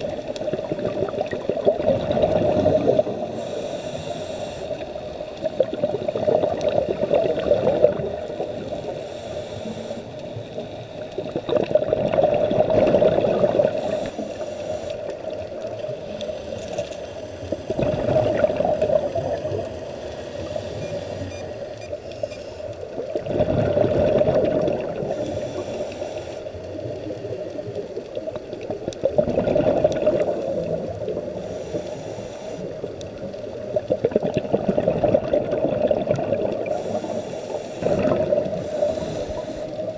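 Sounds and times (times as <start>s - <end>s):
exhaled bubbles underwater: 0.0s - 3.6s, 4.7s - 9.1s, 10.2s - 14.4s, 17.3s - 21.4s, 22.8s - 25.9s, 26.5s - 32.0s, 32.6s - 39.9s
steady underwater hiss: 0.0s - 39.9s.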